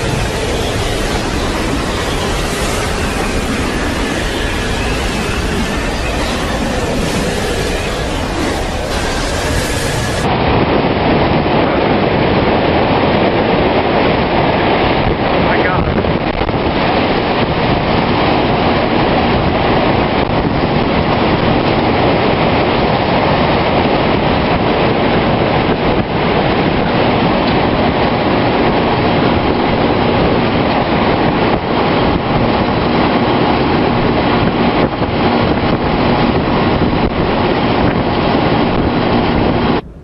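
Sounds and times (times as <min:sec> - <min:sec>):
roar of tornado wind: 0:00.0 - 0:40.0
wind buffeting microphone: 0:00.0 - 0:40.0.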